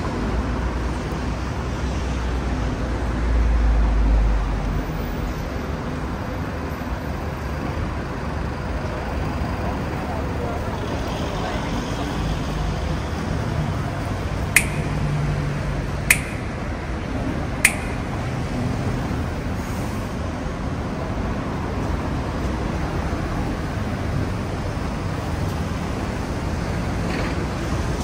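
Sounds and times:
city street traffic noise: 0.0s - 28.0s
sharp ticks: 14.6s - 15.2s, 16.1s - 16.7s, 17.6s - 18.3s.

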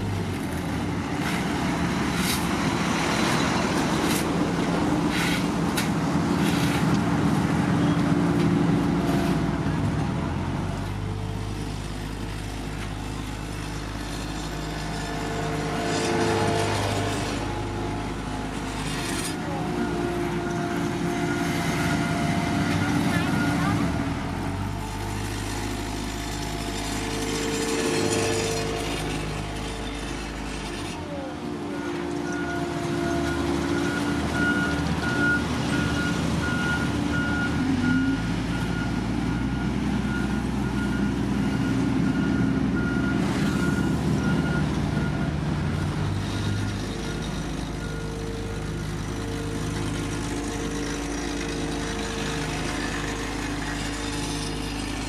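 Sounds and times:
diesel machinery running: 0.0s - 55.0s
reversing alarm beeping: 31.9s - 51.1s.

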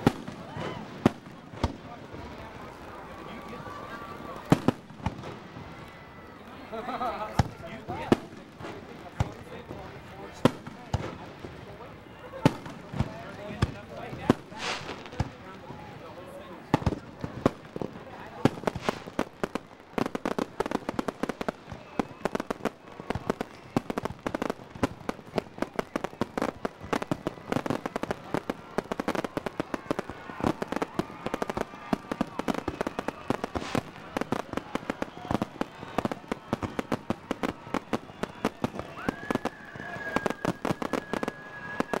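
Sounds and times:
fireworks bangs and crackles: 0.0s - 42.0s
high whistle: 38.2s - 42.0s.

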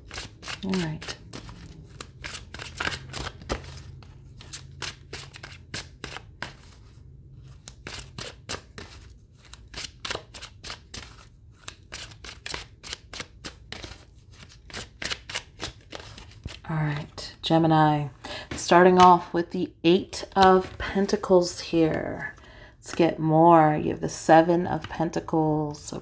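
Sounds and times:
cards being shuffled: 0.0s - 17.1s.

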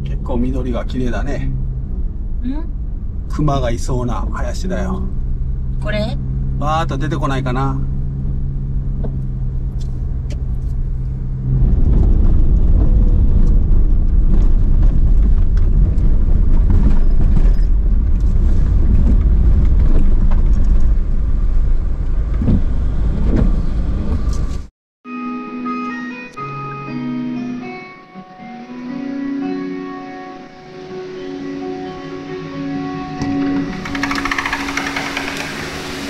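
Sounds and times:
car engine hum: 0.0s - 24.7s, 30.6s - 36.0s
low rumble of road noise: 0.0s - 24.7s.

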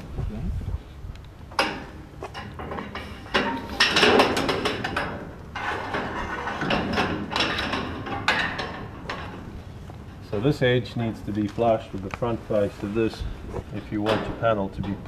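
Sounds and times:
metal panel scraping on metal rail: 5.6s - 7.4s.

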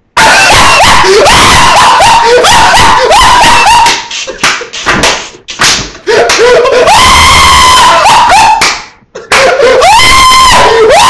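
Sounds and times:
man laughing hard: 0.5s - 3.6s, 6.1s - 8.4s
sharp smacks: 4.4s - 5.9s.

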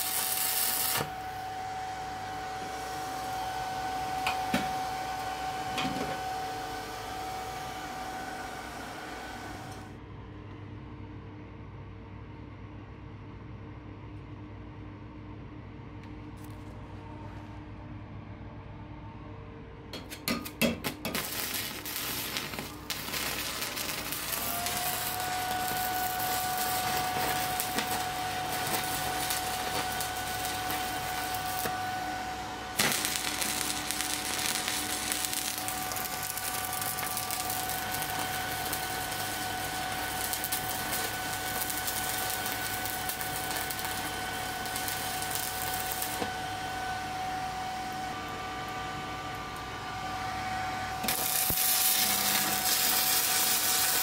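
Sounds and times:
welding arc crackle and hiss: 0.0s - 9.9s, 20.0s - 46.4s, 51.0s - 54.0s.

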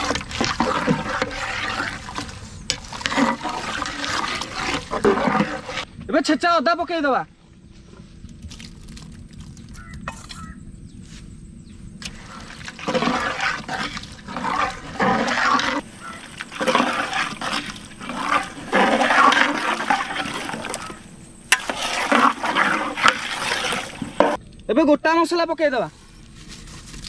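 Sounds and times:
food sizzling in a pot: 15.4s - 24.4s.

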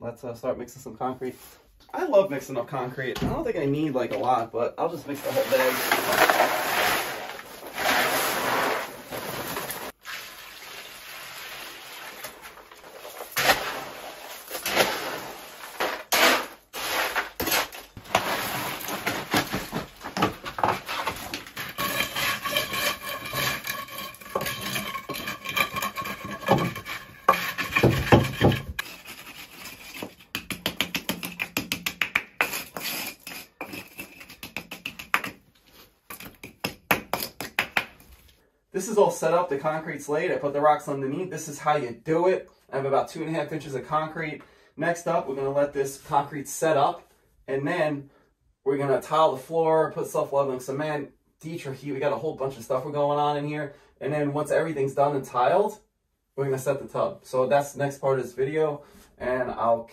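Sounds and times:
trowel scraping wet concrete: 5.1s - 10.0s, 12.0s - 31.4s, 32.4s - 34.9s
dry concrete mix tipped into tub: 5.1s - 21.4s.

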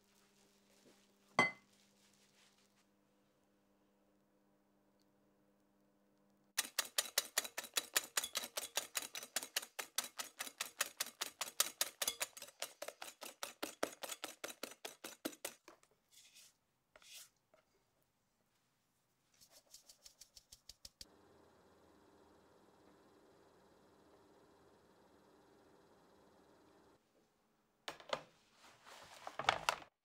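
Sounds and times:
whisk clicking against glass bowl: 6.6s - 15.6s.

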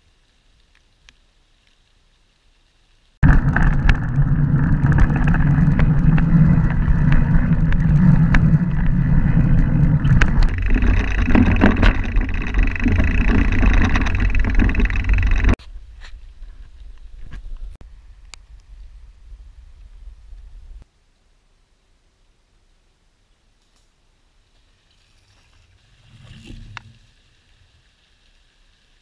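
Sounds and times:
bike rattles and ticks: 3.2s - 15.6s
wind and tyre roar: 3.2s - 15.6s.

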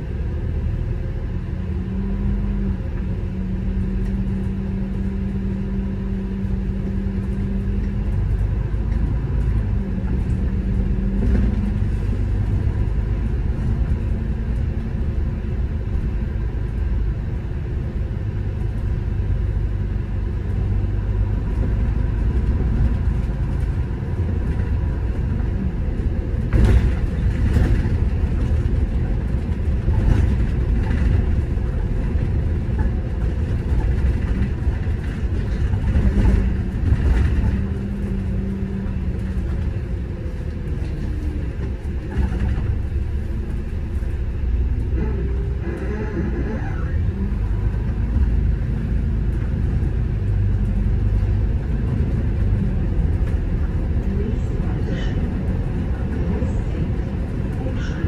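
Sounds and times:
bus engine and road rumble: 0.0s - 58.0s
low hum: 0.0s - 58.0s.

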